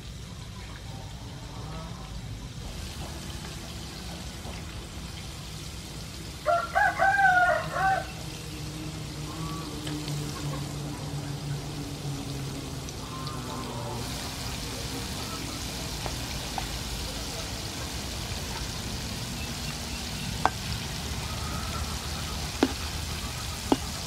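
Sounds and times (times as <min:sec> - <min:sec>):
oil sizzling: 0:02.5 - 0:09.3, 0:10.0 - 0:24.0
rooster crowing: 0:06.4 - 0:08.3.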